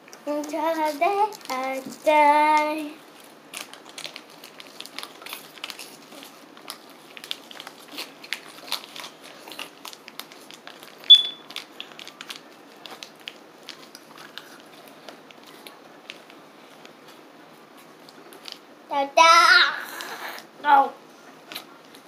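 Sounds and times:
plastic sleeves crinkling: 0.0 - 18.8
loud high squeak: 11.1 - 11.4.

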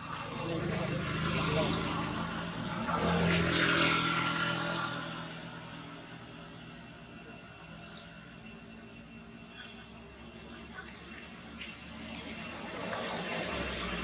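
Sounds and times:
vehicle engine hum: 0.0 - 14.0
high-pitched chirps: 7.7 - 10.6.

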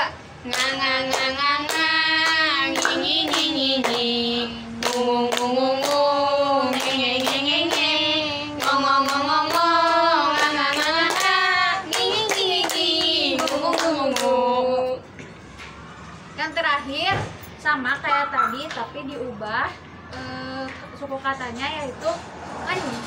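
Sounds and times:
women singing in unison: 0.0 - 15.2
hands clapping in time: 0.5 - 4.1.

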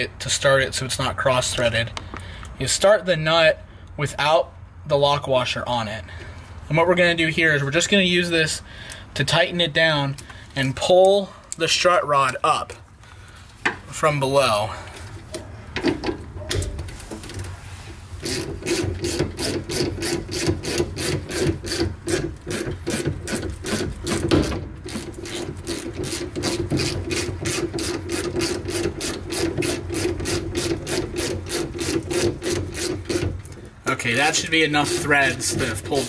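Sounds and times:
ratchet wrench rasping: 18.2 - 24.3, 24.9 - 33.4, 34.1 - 36.0.

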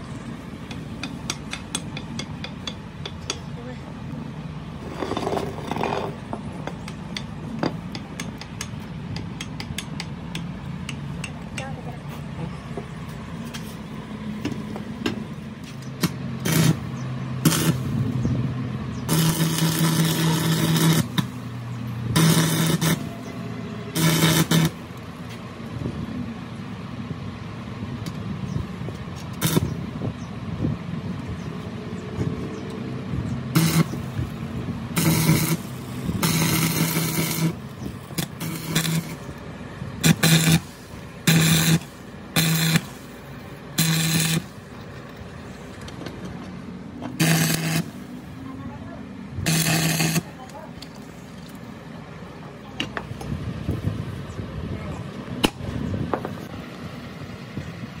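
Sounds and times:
steady low hum: 0.0 - 58.0
welding arc crackling: 15.9 - 18.1, 19.0 - 25.1, 29.3 - 29.8, 33.6 - 45.7, 47.1 - 48.5, 49.4 - 51.7.

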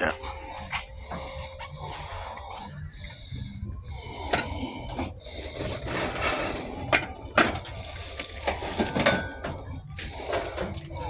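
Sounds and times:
metal shopping cart rattling: 5.6 - 10.9.

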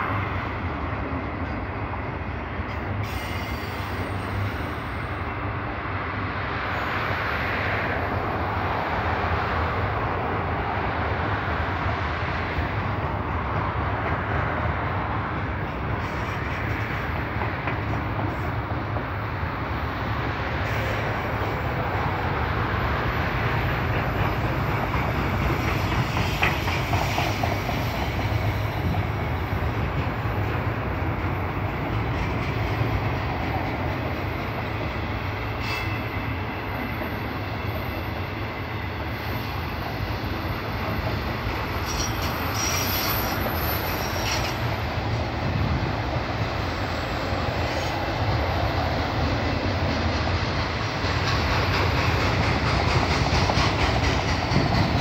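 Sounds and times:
train wheels rumbling on rail: 0.0 - 55.0
high wheel squeal: 35.5 - 38.1, 41.6 - 44.8.

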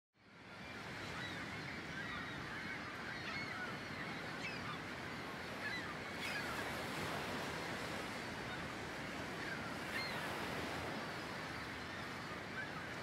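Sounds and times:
flock of birds calling: 1.1 - 7.3.

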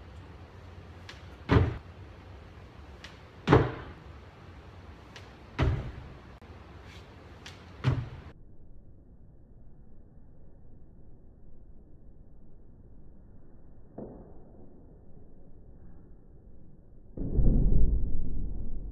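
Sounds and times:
feet landing heavy thuds: 1.4 - 1.8, 3.4 - 4.0.

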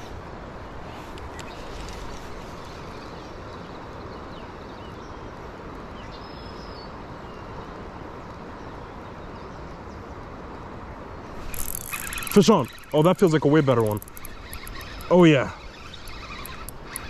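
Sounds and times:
river current rushing: 10.7 - 17.0
faint bird chirps: 11.4 - 17.0
thin high call: 11.4 - 17.0.

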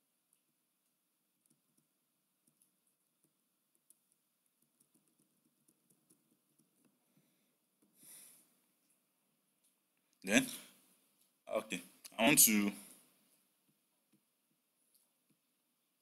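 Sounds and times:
computer keys tapping: 0.8 - 7.0.

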